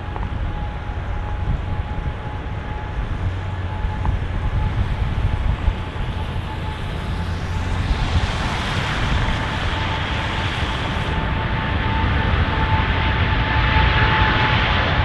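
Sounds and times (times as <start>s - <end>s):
thin steady engine tone: 0.0s - 13.3s
jet engines at takeoff thrust: 0.0s - 15.0s
tyres hissing on wet runway: 4.9s - 11.3s.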